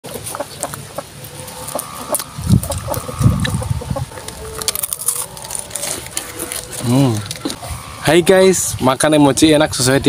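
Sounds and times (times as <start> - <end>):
person crunching and chewing food: 1.5 - 7.7.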